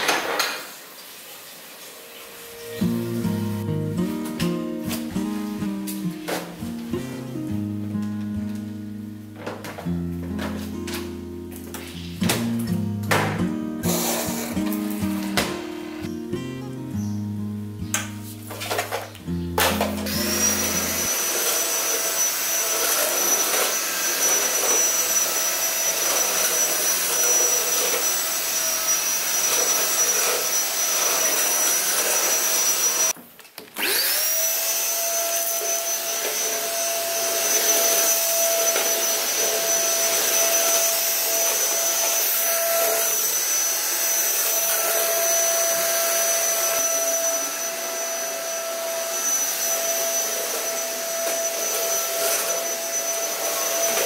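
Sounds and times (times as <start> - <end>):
vacuum cleaner motor whine: 13.8 - 16.1, 18.7 - 33.2, 33.8 - 54.0.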